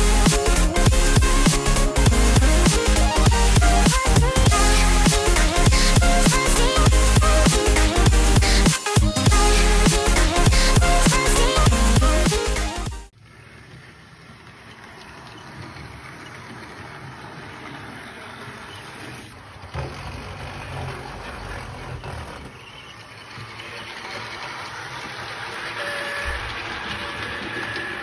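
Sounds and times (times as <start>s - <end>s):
model locomotive rumbling: 13.1s - 28.0s.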